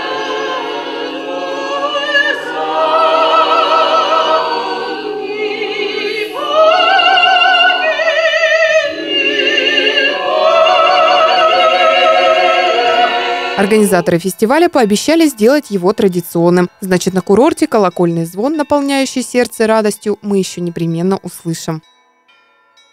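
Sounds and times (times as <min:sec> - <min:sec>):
mixed choir singing held chords: 0:00.0 - 0:14.4
strong vibrato voice singing: 0:00.0 - 0:14.4.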